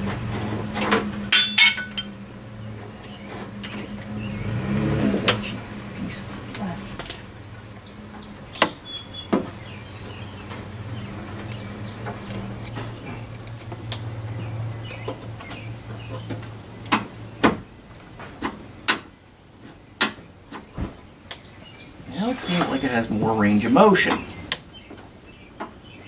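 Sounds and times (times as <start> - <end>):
low hum: 0.0 - 18.1.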